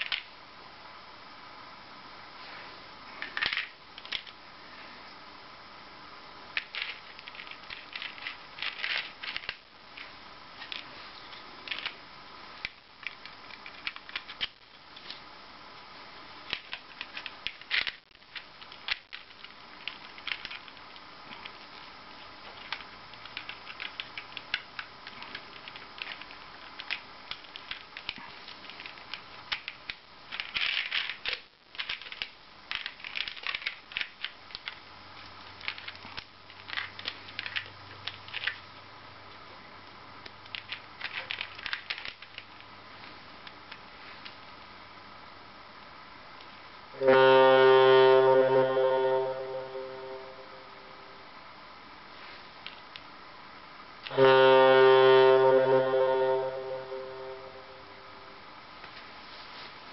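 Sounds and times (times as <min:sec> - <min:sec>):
clicks and rattles of plastic parts: 0:00.0 - 0:00.3, 0:03.2 - 0:04.4, 0:06.6 - 0:12.0, 0:12.6 - 0:15.2, 0:16.5 - 0:34.8, 0:35.6 - 0:38.6, 0:40.4 - 0:42.7.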